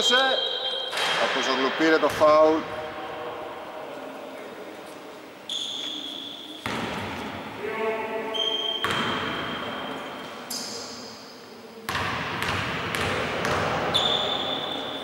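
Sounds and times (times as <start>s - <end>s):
high squeal: 0.0s - 1.1s
basketball bouncing in a gym: 6.6s - 7.4s, 8.4s - 10.0s, 11.9s - 15.0s.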